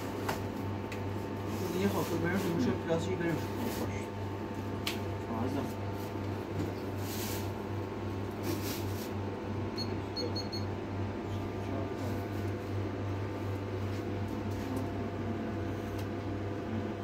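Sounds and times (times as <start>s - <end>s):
steady electrical hum: 0.0s - 17.0s
high electronic keypad beeps: 9.8s - 10.7s.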